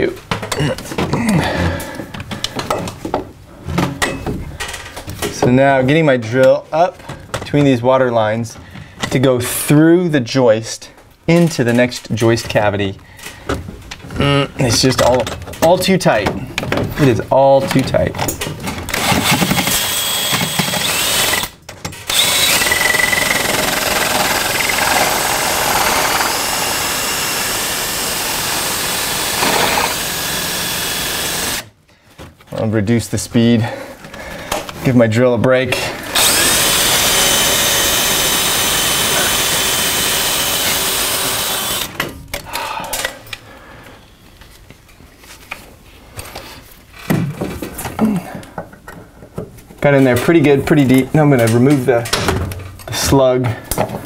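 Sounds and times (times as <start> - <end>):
drill boring through wood: 18.9 - 31.7, 36.1 - 42.0.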